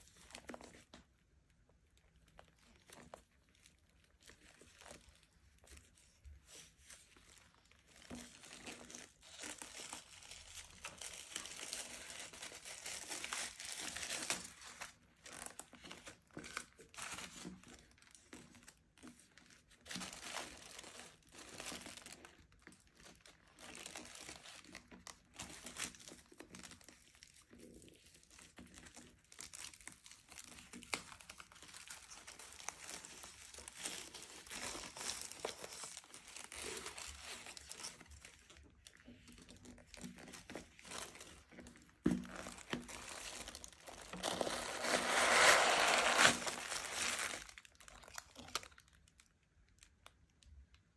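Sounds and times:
tissue paper rustling: 0:02.5 - 0:18.2, 0:29.3 - 0:48.9.

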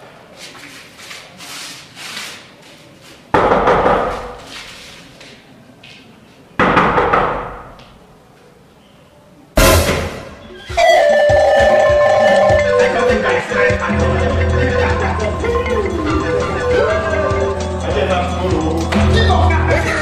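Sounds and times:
heavy bangs on door: 0:03.4 - 0:04.4, 0:06.6 - 0:07.8.

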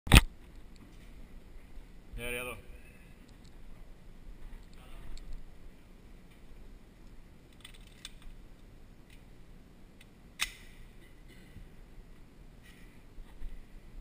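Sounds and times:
pistol magazine clicks: 0:10.4 - 0:10.7.

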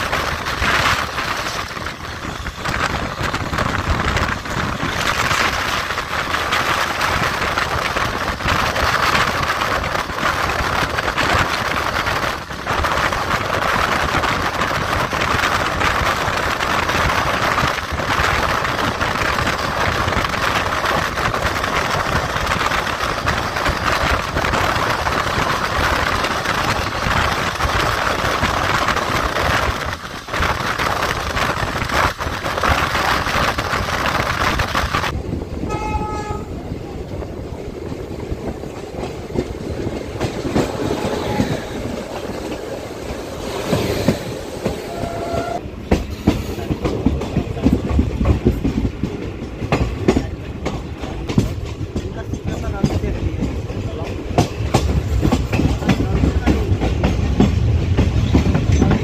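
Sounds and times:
passing electric locomotive: 0:00.0 - 0:59.0
train wheels on rails: 0:00.0 - 0:59.0
wind from train doorway: 0:00.0 - 0:59.0
train horn honking: 0:35.6 - 0:36.6, 0:40.8 - 0:41.9, 0:44.7 - 0:45.7.

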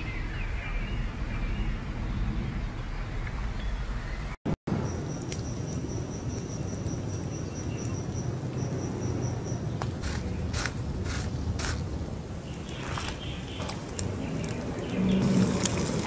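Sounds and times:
insect chirping: 0:04.8 - 0:11.8.

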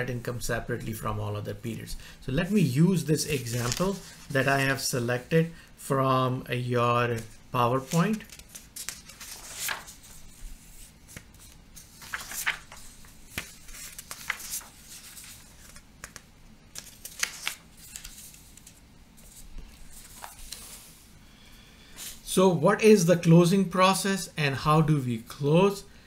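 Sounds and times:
paper pages rustling: 0:03.2 - 0:04.8, 0:07.0 - 0:21.0.

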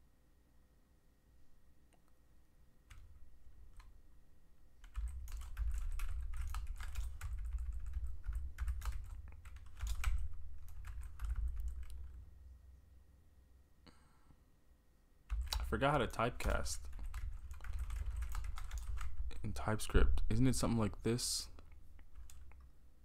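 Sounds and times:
computer keyboard typing: 0:02.9 - 0:04.0, 0:04.8 - 0:12.2, 0:15.3 - 0:19.4, 0:22.0 - 0:22.7.

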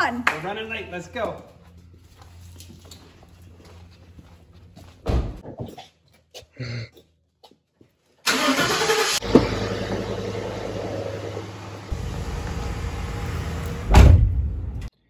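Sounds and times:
truck engine cranking and idling: 0:08.2 - 0:14.9
thump: 0:13.9 - 0:14.4.

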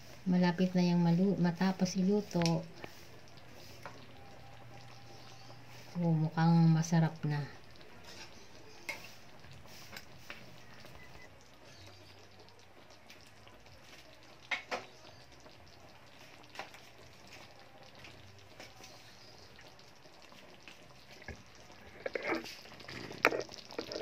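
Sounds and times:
sauce bubbling and sizzling: 0:00.0 - 0:24.0.

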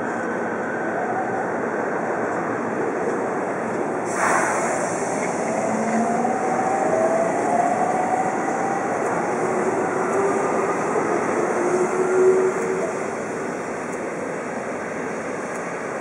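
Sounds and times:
freight train rumbling: 0:00.0 - 0:16.0
bright hiss: 0:04.1 - 0:05.4
locomotive whine rising: 0:04.1 - 0:13.7.

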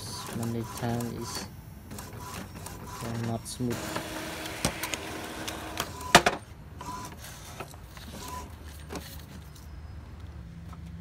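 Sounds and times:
printer carriage running: 0:00.0 - 0:08.6
paper feed clicks: 0:00.1 - 0:06.4
printer sharp clack: 0:00.2 - 0:06.4.

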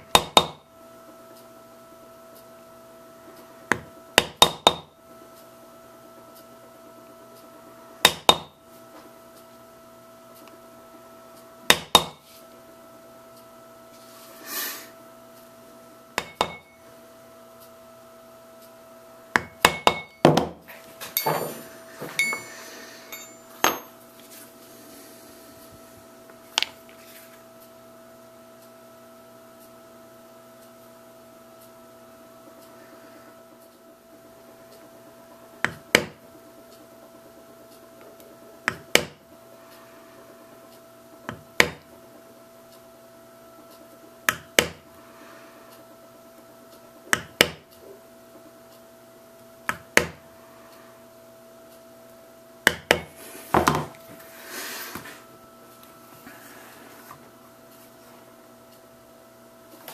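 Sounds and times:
mallet tapping stamping tool: 0:00.0 - 0:00.6, 0:03.7 - 0:04.9, 0:08.0 - 0:08.5, 0:16.2 - 0:16.7, 0:19.4 - 0:20.5, 0:44.3 - 0:44.8, 0:47.1 - 0:47.6, 0:49.7 - 0:50.2, 0:52.6 - 0:53.1
tool handling and clinking: 0:21.0 - 0:24.0.

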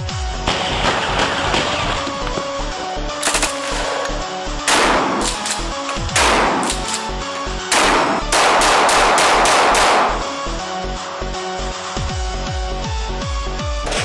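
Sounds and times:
electronic music with beat: 0:00.0 - 0:07.8, 0:08.4 - 0:14.0
shotgun shots: 0:00.4 - 0:02.5, 0:03.2 - 0:10.4.

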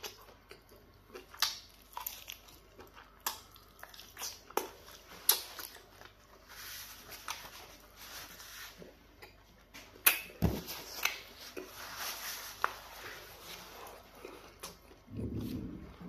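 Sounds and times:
chewing with wet mouth smacks: 0:00.0 - 0:06.4.

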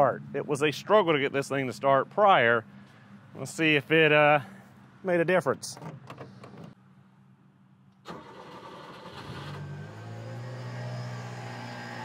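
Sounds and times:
engine cranking on starter: 0:08.0 - 0:10.5.

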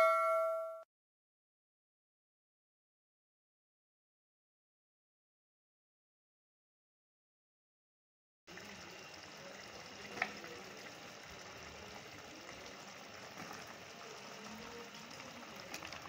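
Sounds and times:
sauce bubbling and sizzling in pan: 0:08.5 - 0:16.0.

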